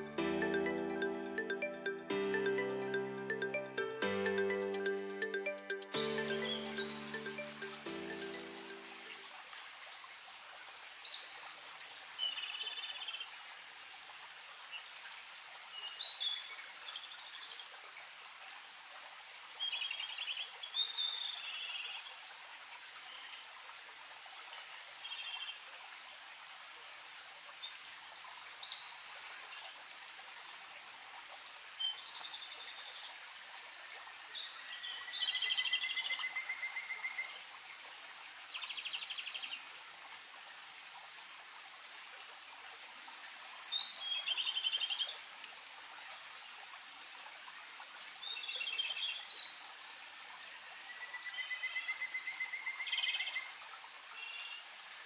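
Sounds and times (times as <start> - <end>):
birds singing whistles and trills: 6.0 - 9.2.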